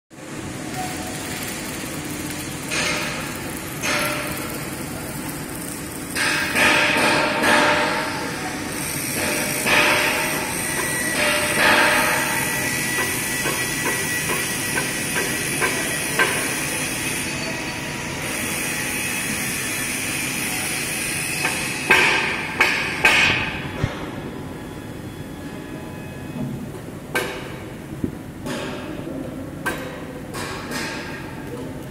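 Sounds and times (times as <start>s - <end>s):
sharp metal clanks: 2.4s - 5.0s.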